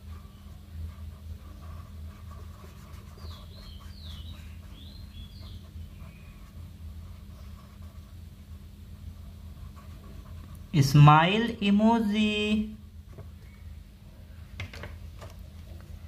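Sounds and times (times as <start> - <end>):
marker scratching on paper: 0.0 - 10.8
low electrical hum: 0.0 - 16.0.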